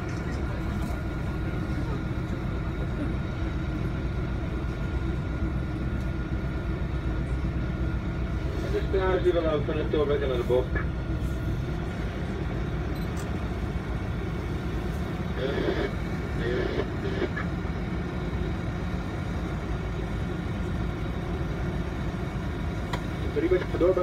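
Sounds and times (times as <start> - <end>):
faint voices: 0.0 - 5.3
boat engine rumble: 0.0 - 24.0.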